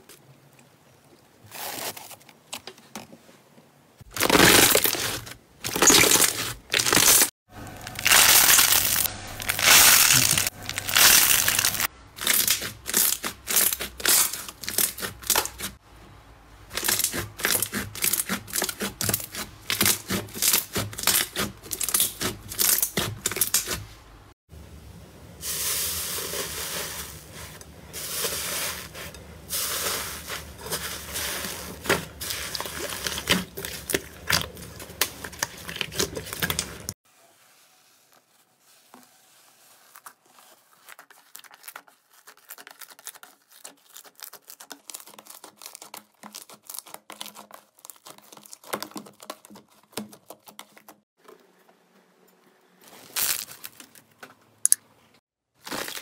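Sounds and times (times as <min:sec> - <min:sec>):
slime crackling and squelching: 0:04.0 - 0:15.8, 0:16.7 - 0:23.8, 0:25.6 - 0:37.0, 0:39.6 - 0:51.0, 0:55.6 - 0:56.0.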